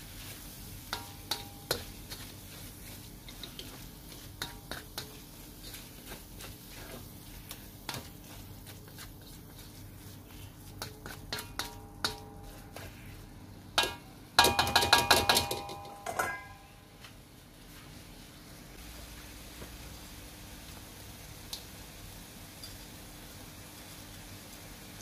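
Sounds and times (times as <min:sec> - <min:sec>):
ladle clanking against wok: 0:00.8 - 0:02.4, 0:03.2 - 0:05.8, 0:10.8 - 0:13.1, 0:13.8 - 0:16.7
metal ladle scraping in a wok: 0:00.8 - 0:08.6, 0:09.2 - 0:14.0, 0:15.2 - 0:16.7.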